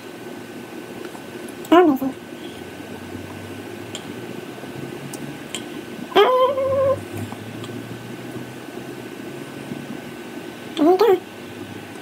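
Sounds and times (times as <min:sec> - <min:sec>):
pet whining: 0:06.1 - 0:07.4.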